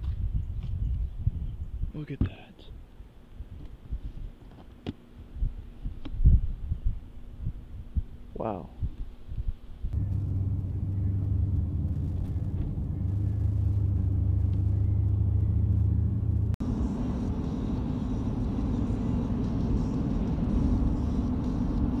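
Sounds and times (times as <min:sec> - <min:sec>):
steady road drone: 0:04.8 - 0:22.0
pickup truck rumble from inside cab: 0:10.0 - 0:22.0.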